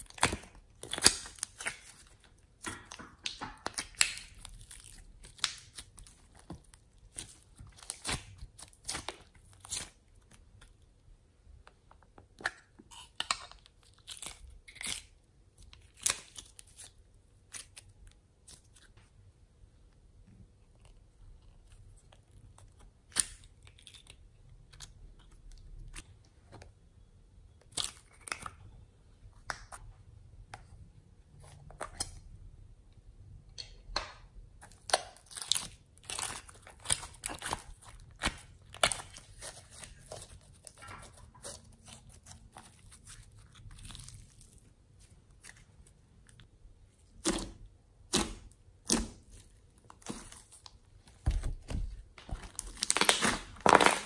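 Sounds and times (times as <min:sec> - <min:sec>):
slime clicking and popping: 0:02.6 - 0:06.1.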